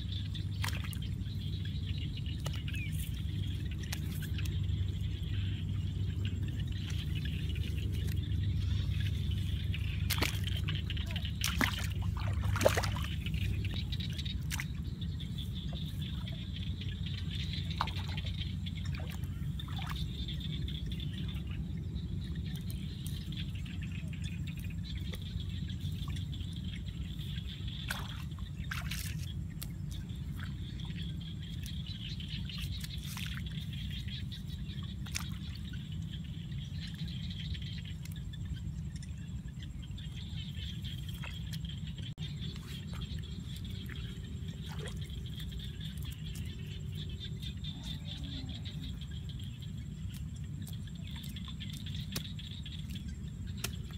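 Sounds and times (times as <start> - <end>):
low rumble: 0.0 - 53.9
water trickling and dripping: 0.0 - 53.9
wet mud squelching: 0.0 - 53.9
sharp wet clicks: 42.4 - 53.9.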